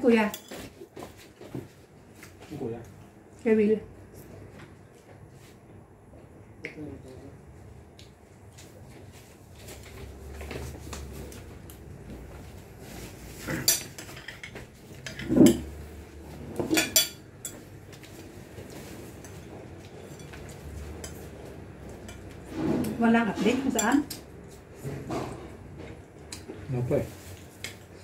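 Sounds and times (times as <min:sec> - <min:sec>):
dishes and spoons clattering: 0:13.5 - 0:15.8, 0:16.5 - 0:18.0, 0:19.1 - 0:24.3.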